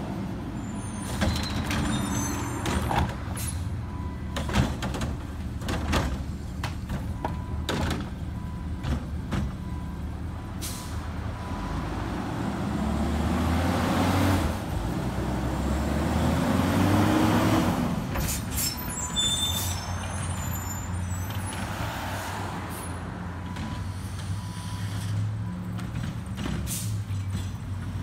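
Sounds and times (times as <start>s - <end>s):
garbage truck engine: 0.4s - 21.7s
brake squeals: 0.5s - 4.6s, 18.1s - 27.9s
air brake hiss: 10.6s - 11.0s, 26.7s - 27.0s.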